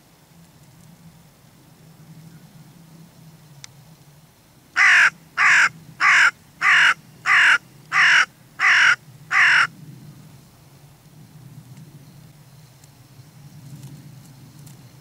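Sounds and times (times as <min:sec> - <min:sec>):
crow cawing: 0:04.8 - 0:09.7.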